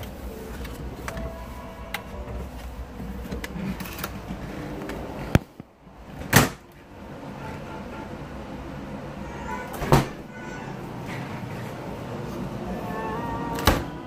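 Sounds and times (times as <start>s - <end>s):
steady low hum: 0.0s - 14.0s
door shutting thud: 9.7s - 10.2s.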